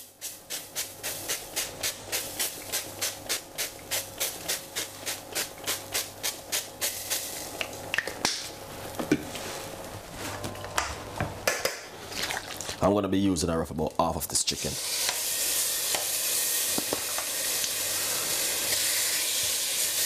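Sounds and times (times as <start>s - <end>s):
oil hissing in pan: 14.5s - 20.0s.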